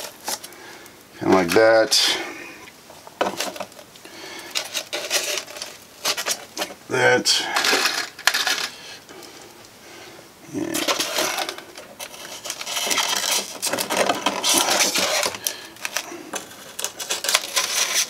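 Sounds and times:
styrofoam scratching and squeaking: 0:00.0 - 0:00.5, 0:04.5 - 0:06.7, 0:10.6 - 0:18.0.

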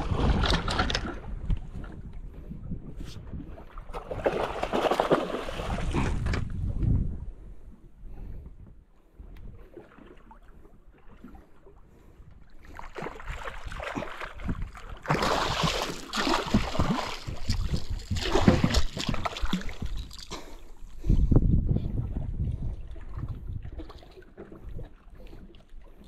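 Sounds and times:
fish thrashing and splashing: 0:00.0 - 0:01.3, 0:03.9 - 0:06.4, 0:12.8 - 0:20.7.

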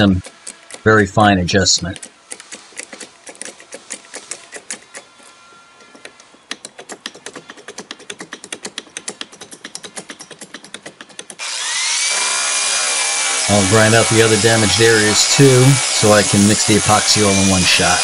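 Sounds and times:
angle grinder whining: 0:00.0 - 0:07.6, 0:11.4 - 0:18.0
bottle jack clicking: 0:06.2 - 0:11.4.

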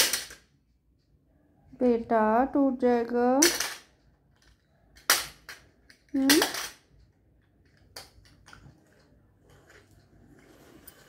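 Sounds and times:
plastic toys knocking on tile floor: 0:00.0 - 0:00.6, 0:03.4 - 0:08.8.

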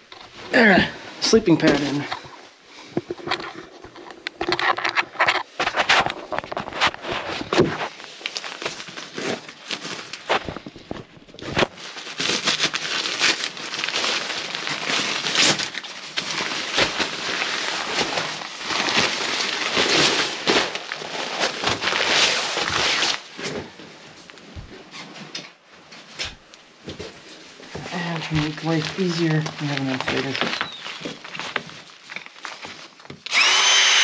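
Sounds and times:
sleeping pad crinkling and rustling: 0:01.3 - 0:33.3.

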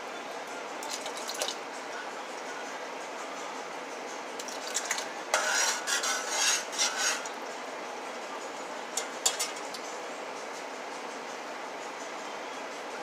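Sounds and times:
spoon clinking against pot: 0:04.4 - 0:07.4, 0:09.0 - 0:09.8
metal spoon stirring in a pot: 0:04.4 - 0:07.5, 0:09.0 - 0:09.8.

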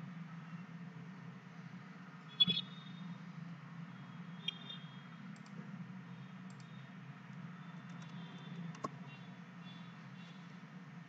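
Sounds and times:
steady low hum: 0:00.0 - 0:11.0
computer mouse clicks: 0:05.3 - 0:05.6, 0:06.5 - 0:09.0.

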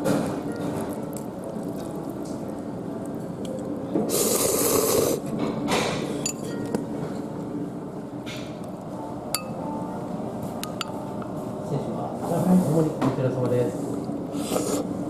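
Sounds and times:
slurping noodles: 0:04.1 - 0:05.3, 0:14.3 - 0:15.0.

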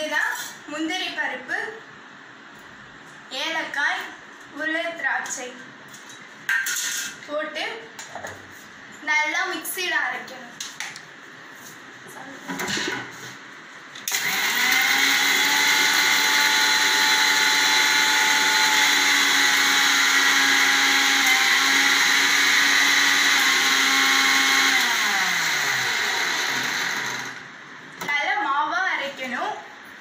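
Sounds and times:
mixer grinder motor grinding: 0:14.1 - 0:27.5.

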